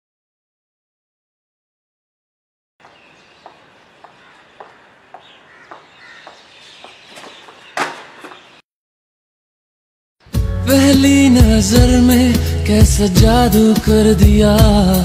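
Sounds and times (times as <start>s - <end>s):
footsteps walking: 2.8s - 8.6s
outdoor background noise: 2.8s - 8.6s.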